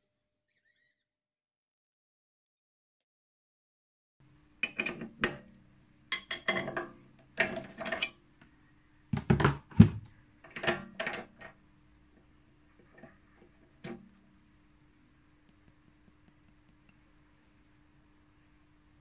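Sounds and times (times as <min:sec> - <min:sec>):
faint steady hum: 0:04.2 - 0:19.0.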